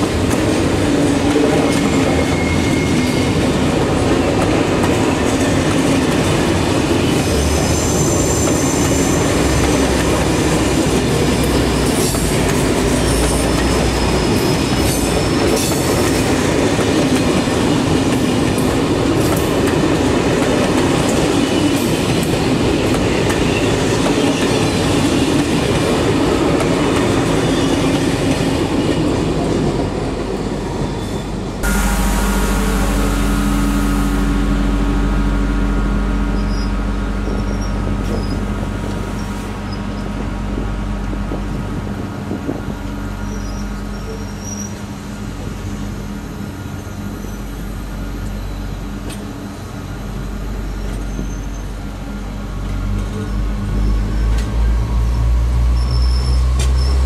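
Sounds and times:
steel wheels rumbling on rail: 0.0s - 57.0s
high wheel squeal: 1.5s - 3.8s, 7.0s - 16.0s, 31.0s - 40.0s, 43.2s - 44.9s, 50.7s - 51.8s, 53.2s - 57.0s.

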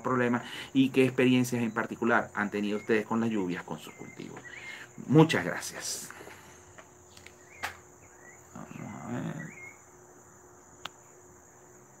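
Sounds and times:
crickets chirring: 0.0s - 12.0s
sharp click: 7.2s - 7.8s.

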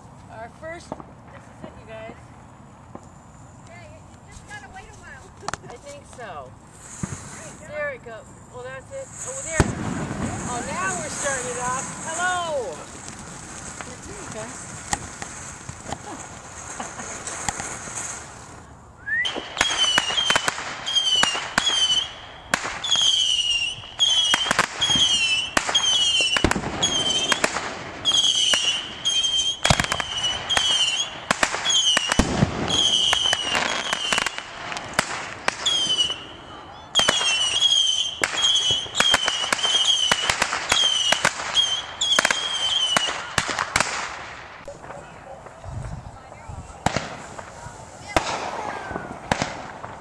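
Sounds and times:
firework bangs: 0.7s - 50.0s
firework whistles: 6.7s - 7.9s, 8.5s - 44.8s
deep firework boom: 9.4s - 18.1s, 31.3s - 33.7s.

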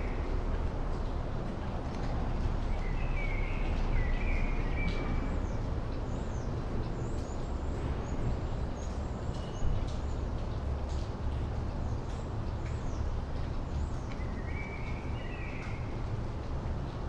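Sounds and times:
low town rumble: 0.0s - 17.0s
small birds chirping: 11.8s - 16.1s.

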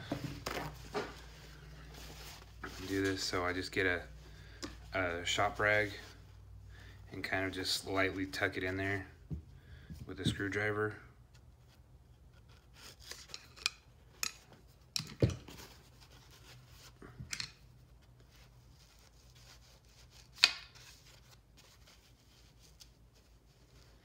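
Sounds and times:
rag rustling: 0.0s - 6.4s.

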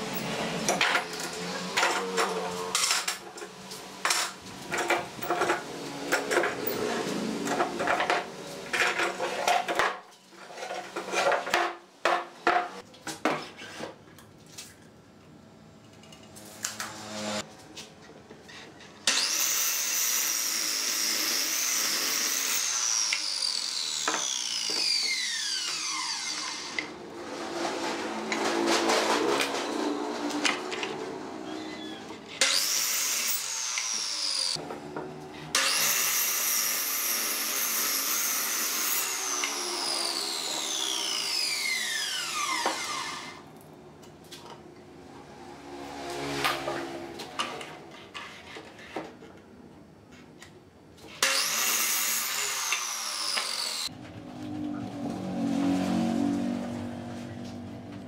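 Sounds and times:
saw winding down whine: 20.5s - 26.9s, 35.6s - 43.4s
saw motor running: 35.6s - 43.4s, 51.2s - 53.9s.

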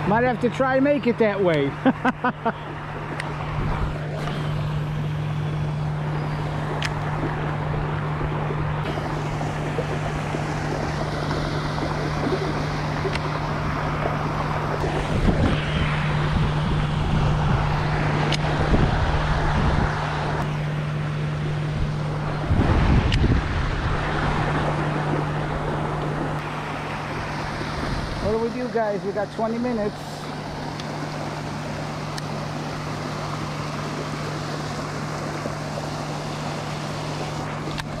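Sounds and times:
boat motor humming: 0.0s - 38.0s
water rushing: 0.0s - 38.0s
wind buffeting microphone: 2.6s - 20.6s, 21.3s - 35.5s.

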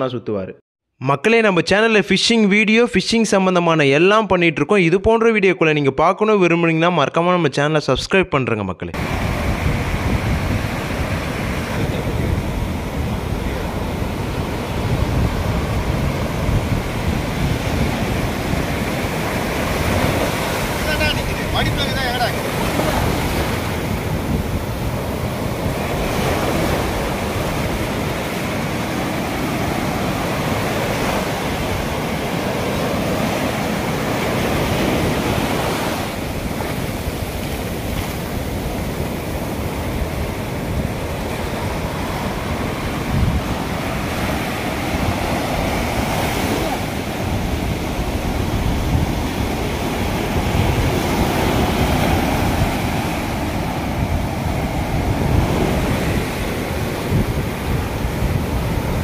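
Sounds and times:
surf breaking on beach: 9.0s - 59.0s
wind buffeting microphone: 9.0s - 59.0s.

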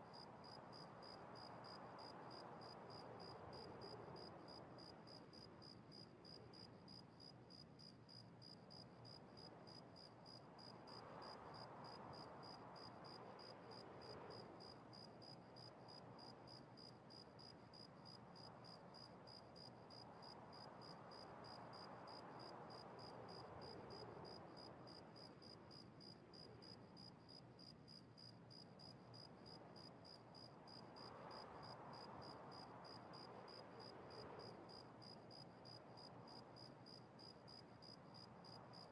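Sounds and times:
faint room hiss: 0.0s - 38.9s.

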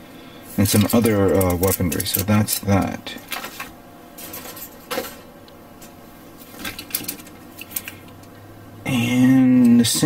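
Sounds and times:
plastic parts rattling and clicking: 0.7s - 5.2s, 6.6s - 8.3s.

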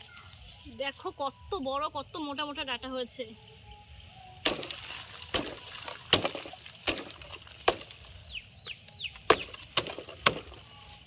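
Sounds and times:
sharp snapping cracks: 4.4s - 8.1s, 8.8s - 10.7s
bird peeping: 8.0s - 9.8s.

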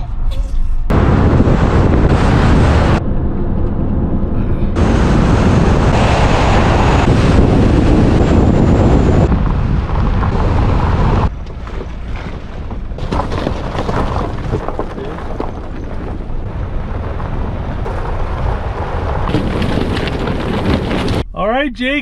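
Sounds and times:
tyres rumbling on dirt road: 0.8s - 22.0s
wind buffeting microphone: 0.9s - 21.3s
tyres crunching on gravel: 9.9s - 21.2s.

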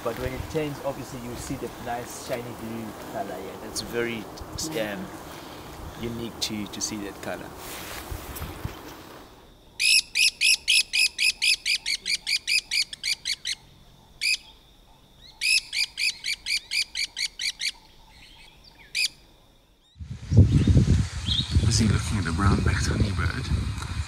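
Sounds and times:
birds duetting with ringing notes: 9.6s - 20.0s.

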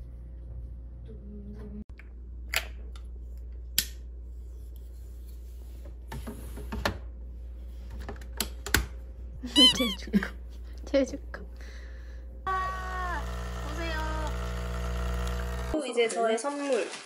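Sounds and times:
steady low hum: 9.0s - 15.8s.

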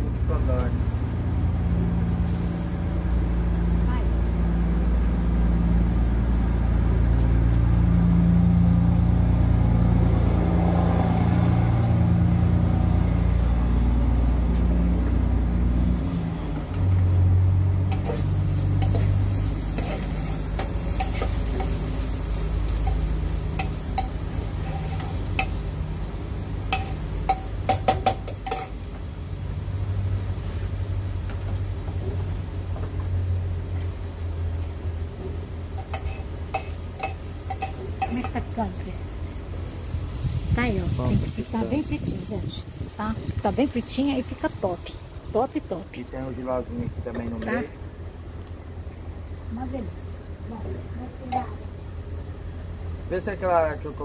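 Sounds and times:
engine rumbling: 0.0s - 54.0s
vegetables frying in a pan: 12.0s - 46.6s
metal spatula tapping pan: 19.8s - 21.8s, 22.7s - 25.6s, 26.7s - 28.8s, 35.8s - 38.5s.

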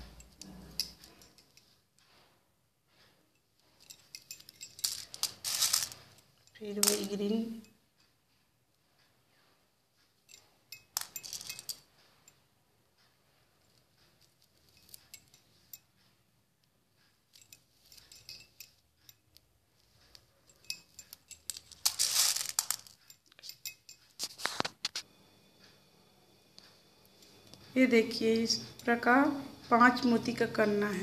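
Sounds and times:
plastic beads clicking in steel bowl: 3.8s - 7.7s, 10.3s - 11.9s, 20.1s - 24.7s.

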